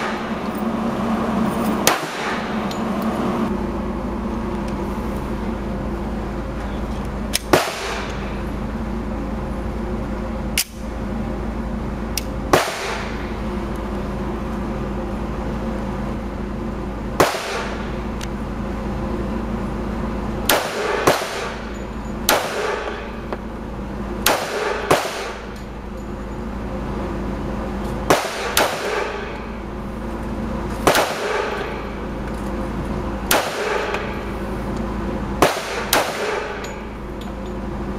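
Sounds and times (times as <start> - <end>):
steady low hum: 0.0 - 37.9
pistol shots with echo: 7.5 - 8.2, 12.5 - 13.2, 17.2 - 17.8, 20.5 - 21.7, 22.3 - 23.1, 24.2 - 25.5, 28.1 - 29.4, 30.8 - 31.8, 33.3 - 34.1, 35.4 - 36.6.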